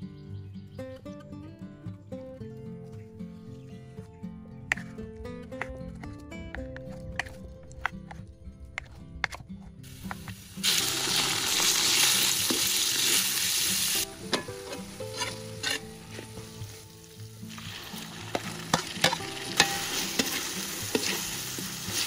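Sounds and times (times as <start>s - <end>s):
soft background music: 0.0s - 22.0s
meat sizzling in oil: 9.9s - 22.0s
metal spatula scraping wok: 13.8s - 16.8s.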